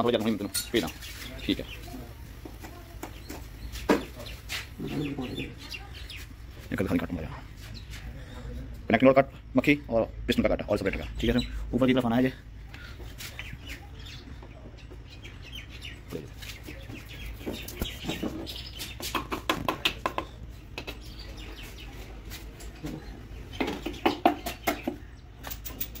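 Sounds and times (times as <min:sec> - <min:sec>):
metal tools clinking: 0:25.4 - 0:26.0.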